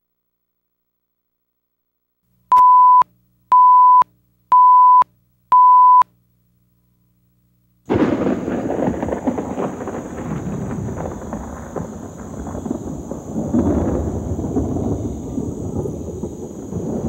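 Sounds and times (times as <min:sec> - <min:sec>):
countdown beeps: 0:02.5 - 0:06.0
rain: 0:07.9 - 0:17.0
thunder: 0:07.9 - 0:17.0.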